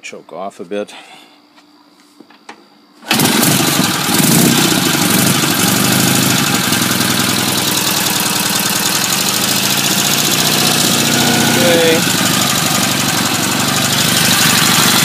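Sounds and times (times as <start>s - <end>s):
motorcycle engine idling: 3.1s - 15.0s.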